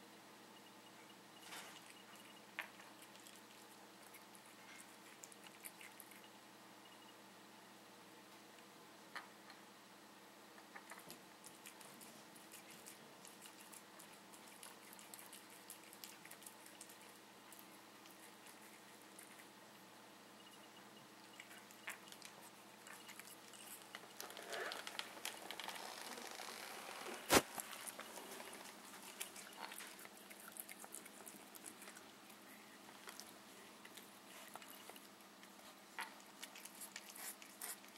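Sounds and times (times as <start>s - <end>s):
cat chewing with wet clicks: 1.6s - 6.4s, 10.8s - 20.6s, 21.2s - 25.6s, 27.4s - 37.9s.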